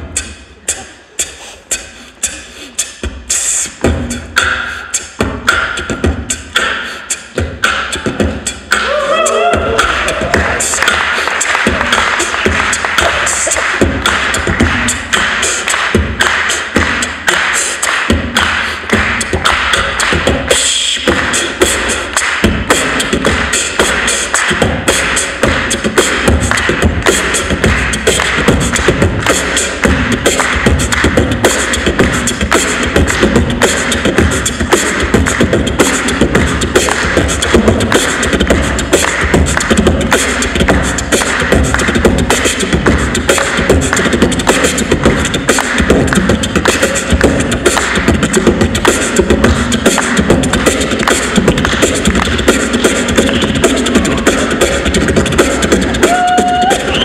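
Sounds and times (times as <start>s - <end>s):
beatboxing: 0.0s - 57.0s
deep bass: 7.4s - 17.4s.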